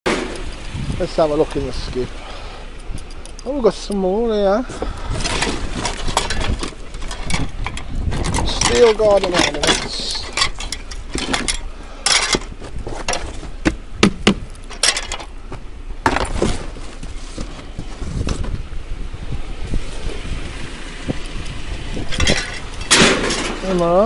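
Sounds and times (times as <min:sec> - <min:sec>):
steel ornaments clinking and rattling: 0:05.8 - 0:12.6, 0:14.5 - 0:15.4, 0:22.0 - 0:24.0.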